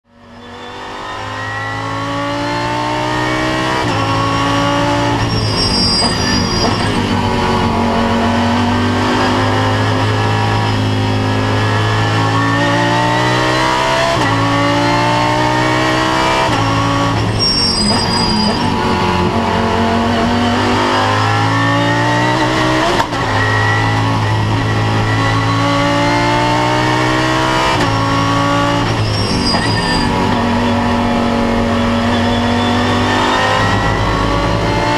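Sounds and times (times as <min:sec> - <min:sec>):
racing car engine revving: 0:00.1 - 0:34.9.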